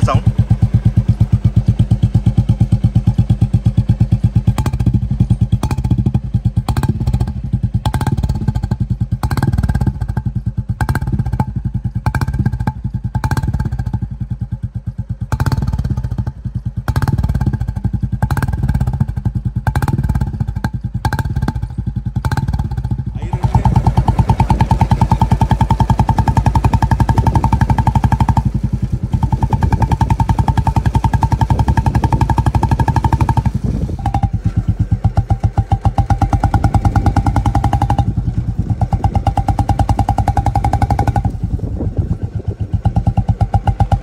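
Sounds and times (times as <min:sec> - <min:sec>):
motorcycle engine idling: 0:00.0 - 0:44.0.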